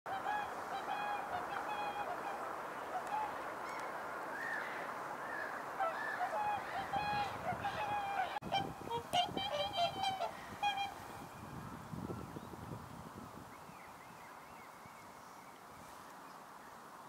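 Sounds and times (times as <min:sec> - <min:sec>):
swans honking: 0:00.1 - 0:03.8, 0:04.4 - 0:11.6
high arching swan calls: 0:00.1 - 0:11.6.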